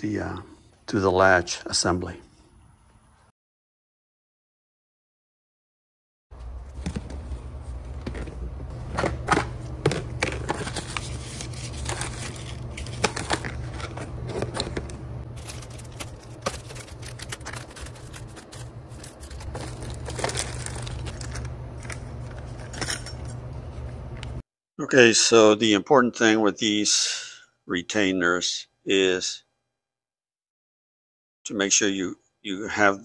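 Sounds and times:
plastic tubs being handled and opened: 6.4s - 22.9s
low steady hum: 6.4s - 25.8s
plastic bags rustling and crinkling: 10.0s - 22.7s.

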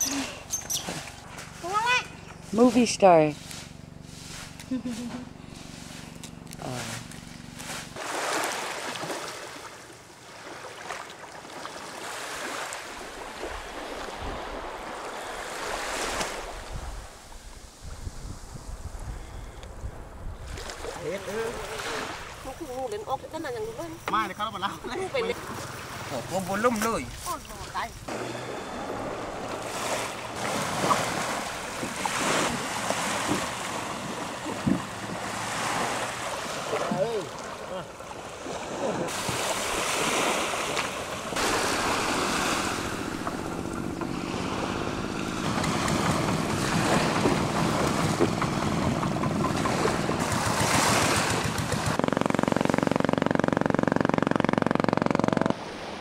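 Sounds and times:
small waves washing on beach: 0.0s - 19.3s, 20.4s - 52.0s, 55.5s - 56.0s
wind rumbling on microphone: 16.4s - 22.6s.

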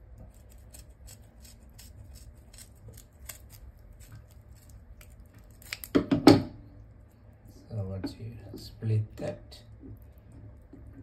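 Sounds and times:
scissors snipping: 0.3s - 6.0s.

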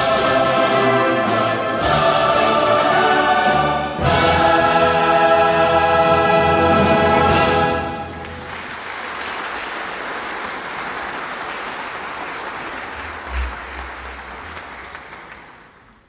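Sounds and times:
crowd applauding: 8.1s - 16.0s.

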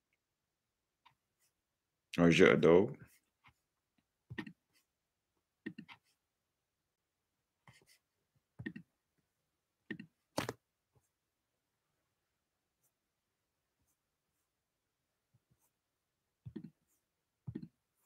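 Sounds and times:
faint clicks and taps: 16.4s - 16.9s, 17.5s - 17.8s.

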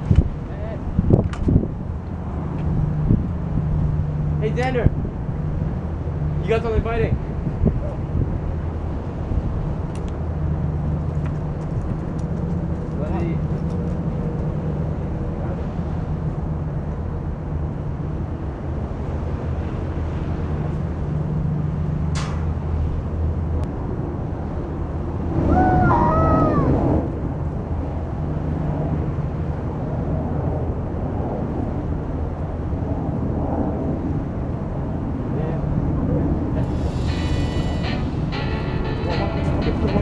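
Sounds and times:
wind buffeting microphone: 0.0s - 38.3s
low engine drone: 35.7s - 40.0s.

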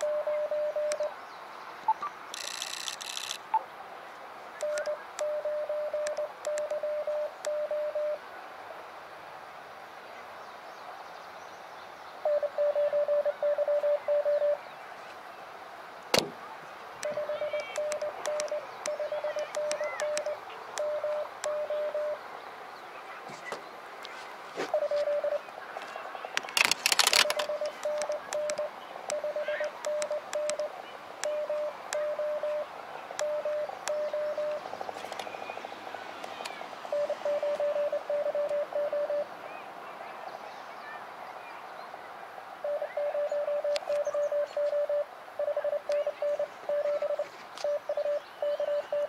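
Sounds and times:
morse code tone: 0.0s - 1.1s, 4.6s - 8.2s, 12.3s - 14.6s, 17.0s - 22.2s, 24.7s - 25.4s, 27.1s - 34.6s, 36.9s - 39.3s, 42.6s - 49.0s
receiver hiss: 0.0s - 11.5s, 12.1s - 39.6s
sharp click: 2.4s - 3.4s, 26.4s - 29.2s.

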